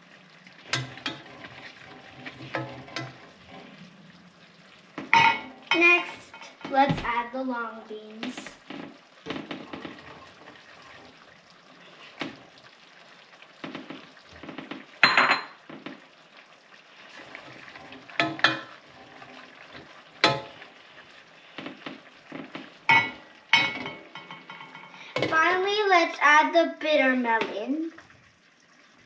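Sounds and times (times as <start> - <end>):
stew simmering: 0.0 - 29.0
spoon knocking against pot: 18.2 - 18.7, 20.2 - 20.6.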